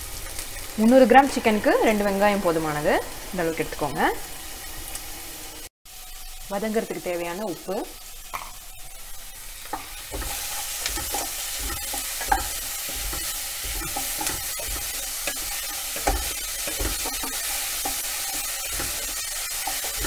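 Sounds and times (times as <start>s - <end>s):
onions sizzling in hot oil: 0.0s - 20.0s
wooden spatula scraping a pan: 9.7s - 20.0s.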